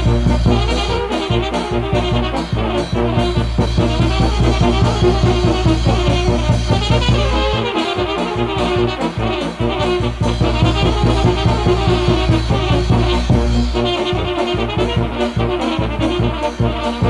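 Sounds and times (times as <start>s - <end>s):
brass band playing: 0.0s - 17.0s
drum beat: 0.0s - 17.0s.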